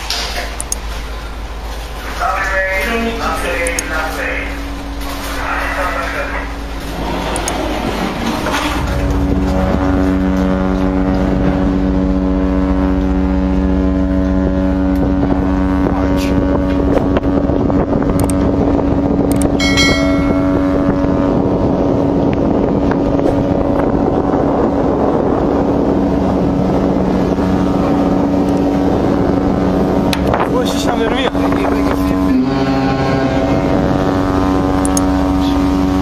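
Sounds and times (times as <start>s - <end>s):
ship's horn blast: 1.2s - 36.0s
wind noise on microphone: 4.6s - 36.0s.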